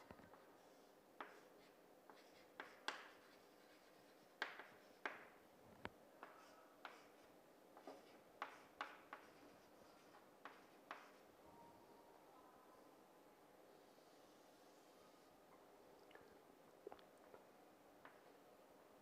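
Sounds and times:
chalk scratching on chalkboard: 0.3 - 5.3, 6.2 - 11.3.

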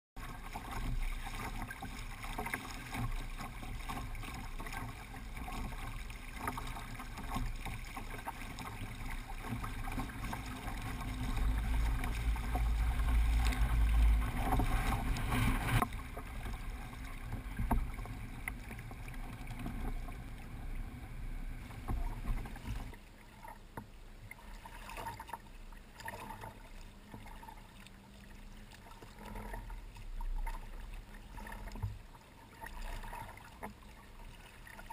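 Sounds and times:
water lapping: 0.2 - 34.9
water rushing along hull: 0.2 - 34.9
wind buffeting microphone: 10.4 - 18.0.

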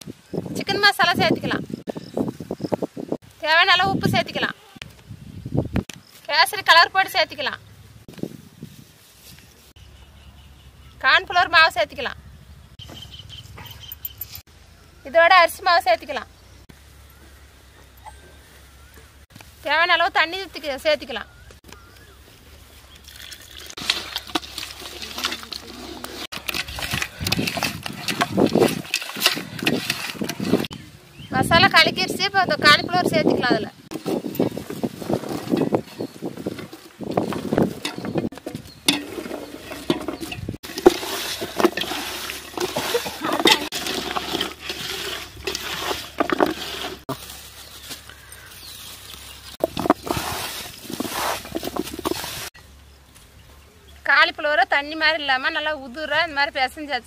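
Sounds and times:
wet batter squelching and sloshing: 23.0 - 30.7, 40.6 - 47.2
hand squelching wet batter: 40.6 - 47.2.

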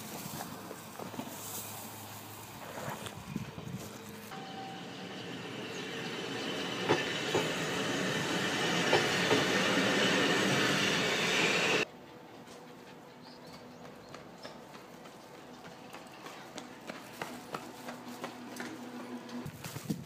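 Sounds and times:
electric railcar passing: 0.0 - 19.5
quiet street background: 0.0 - 20.0
high wheel squeal: 4.3 - 11.8
wheels clacking over rail joints: 4.3 - 11.8.

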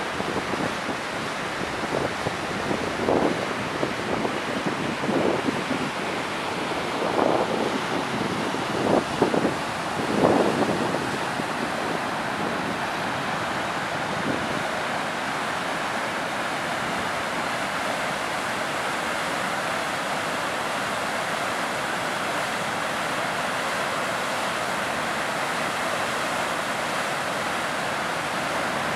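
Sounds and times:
waterfall rushing: 0.0 - 28.9.

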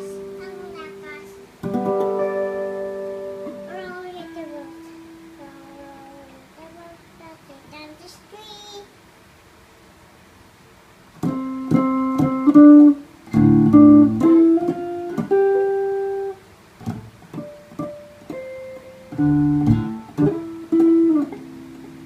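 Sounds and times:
electric guitar strings plucked: 0.0 - 6.2, 11.2 - 22.0.

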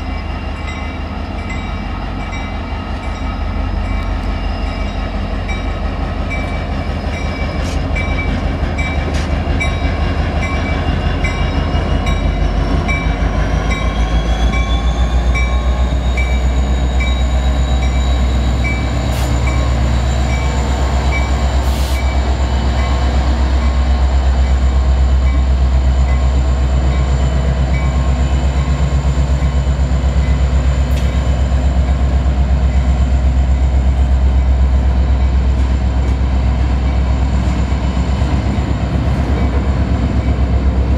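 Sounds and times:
diesel locomotive engine rumbling: 0.0 - 40.9.

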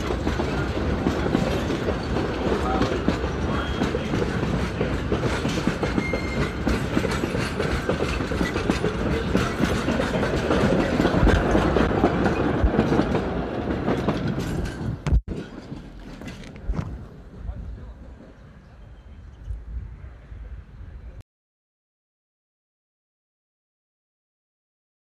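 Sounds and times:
train wheels clattering over rail joints: 0.0 - 17.0.

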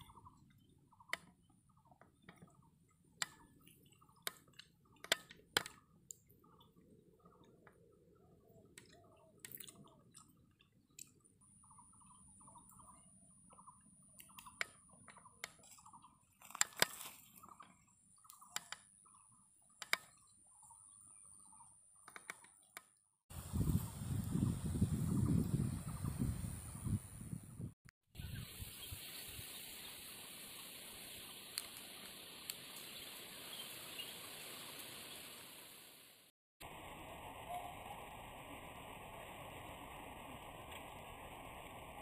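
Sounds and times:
birds chirping: 0.0 - 22.7, 28.2 - 35.7.

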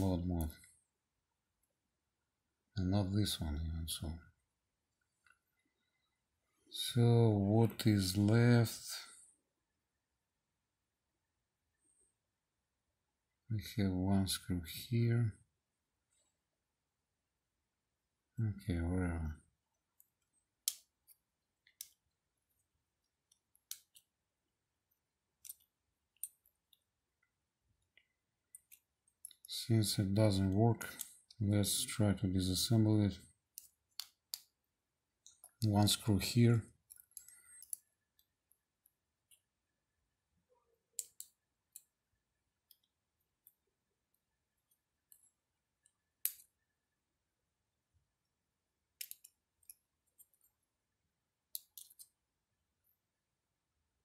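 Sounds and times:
light clicks and taps: 49.0 - 50.6.

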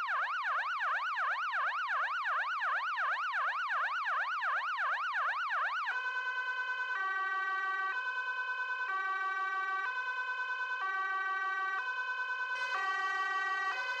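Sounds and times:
electronic siren yelping: 12.6 - 14.0.

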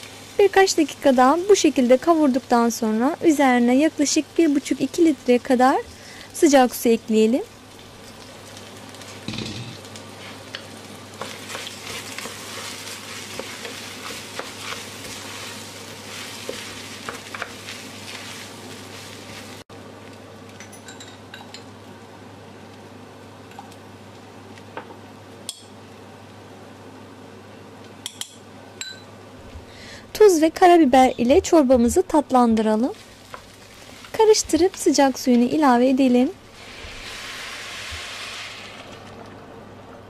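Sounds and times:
food sizzling in oil: 0.0 - 19.7, 30.2 - 39.8.

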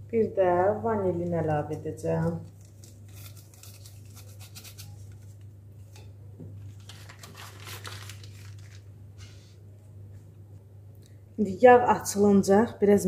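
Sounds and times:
paper and foil packaging crinkling: 2.2 - 5.4, 6.7 - 9.0.

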